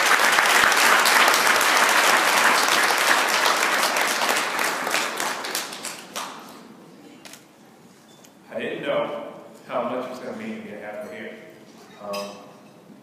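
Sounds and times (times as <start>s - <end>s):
people applauding: 0.0s - 6.7s.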